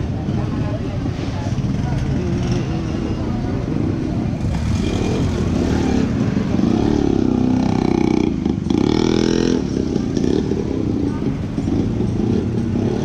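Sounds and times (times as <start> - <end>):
passing road vehicles: 0.0 - 13.0
engine passing close: 1.2 - 10.9.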